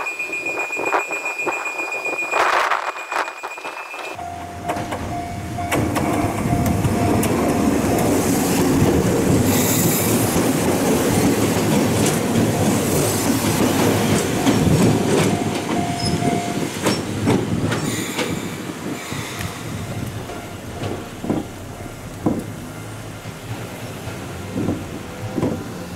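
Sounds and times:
train wheels clattering over rail joints: 5.7 - 25.9.

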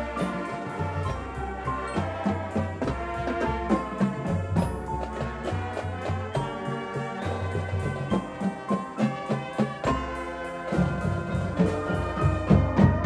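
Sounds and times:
brass chords: 0.0 - 13.0
percussion beat: 0.0 - 13.0.

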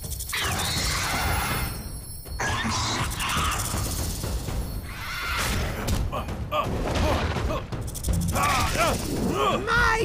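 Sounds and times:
background music: 0.0 - 10.0
monster shrieking cry: 2.4 - 3.8.

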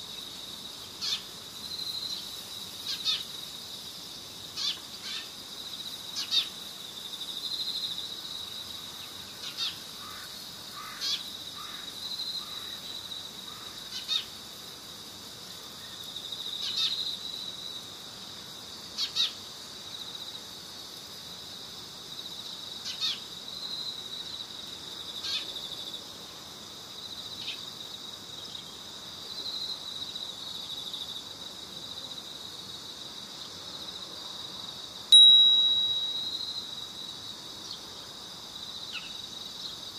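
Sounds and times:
high-pitched bird-like chirps: 35.2 - 36.5
steady high-pitched trill: 35.2 - 36.6.

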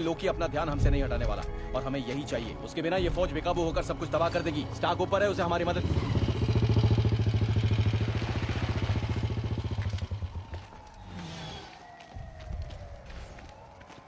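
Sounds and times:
motorcycle engine puttering: 4.3 - 10.6.

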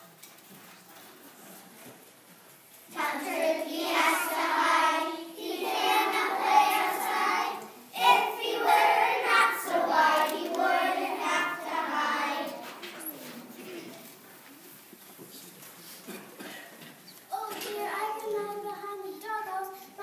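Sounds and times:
children singing in unison: 2.9 - 12.8.

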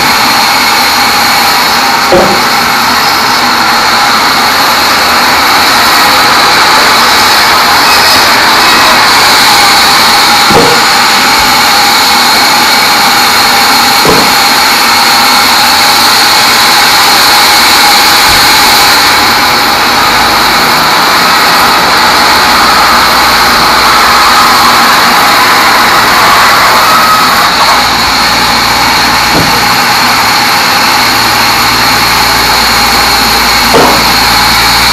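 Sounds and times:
band saw cutting log: 0.0 - 34.9
sharp knocks: 2.0 - 2.7, 10.4 - 11.0, 14.0 - 14.5, 29.2 - 29.9, 33.7 - 34.2.

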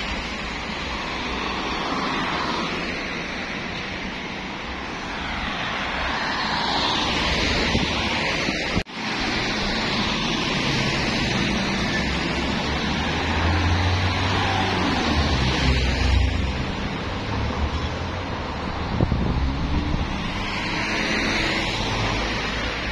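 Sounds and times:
street traffic: 0.0 - 22.9
wind on microphone: 7.2 - 8.9, 18.6 - 21.2.

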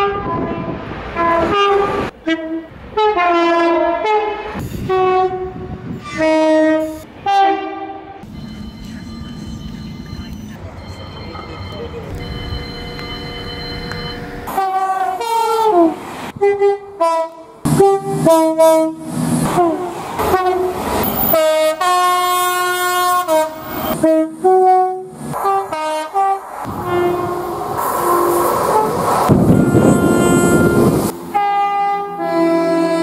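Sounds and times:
two-tone train horn blasts: 0.0 - 8.3, 12.2 - 33.0
rumble of passing train: 0.0 - 33.0
long two-note train horn chord: 29.5 - 33.0.

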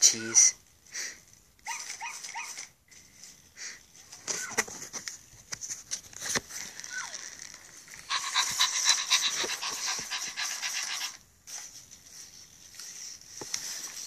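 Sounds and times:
toy dog panting sound: 8.1 - 11.2.

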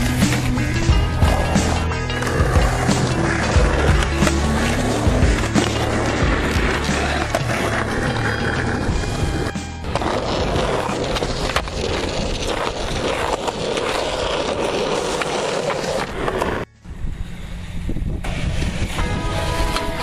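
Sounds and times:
background music: 0.0 - 11.4, 18.9 - 20.0
skateboard clacks: 0.0 - 16.6
skateboard wheels rolling on concrete: 0.0 - 20.0.

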